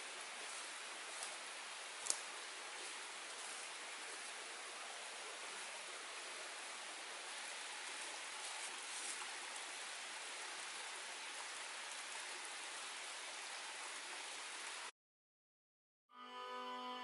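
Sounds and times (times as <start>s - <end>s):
stream running over rocks: 0.0s - 14.9s.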